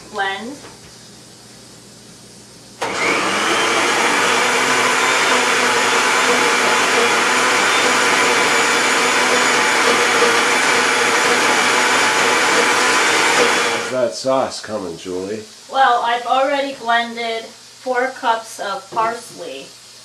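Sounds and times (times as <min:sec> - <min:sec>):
electric blender running: 0:02.8 - 0:14.0.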